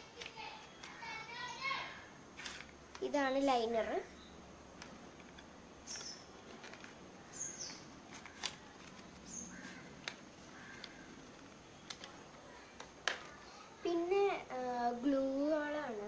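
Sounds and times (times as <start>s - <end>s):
faint birds chirping: 0.0s - 16.0s
plastic paint tubes clicking: 4.8s - 7.0s, 7.6s - 13.5s.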